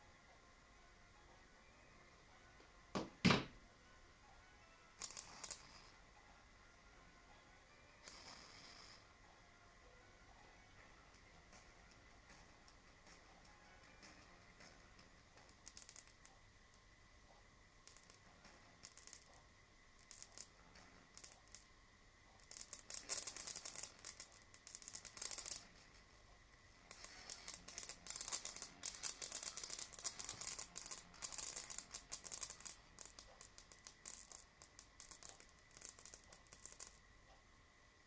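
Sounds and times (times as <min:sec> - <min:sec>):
faint high whine: 0:00.0 - 0:38.0
electrodes crackling and snapping: 0:05.0 - 0:05.8, 0:10.8 - 0:16.4, 0:17.7 - 0:21.7, 0:22.4 - 0:26.2, 0:26.8 - 0:37.0.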